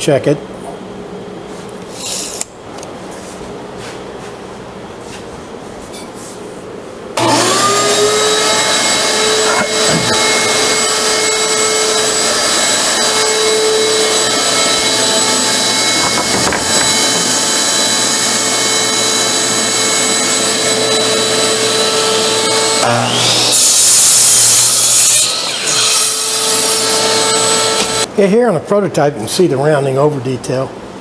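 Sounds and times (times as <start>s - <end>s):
electric motor whining: 7.2s - 28.1s.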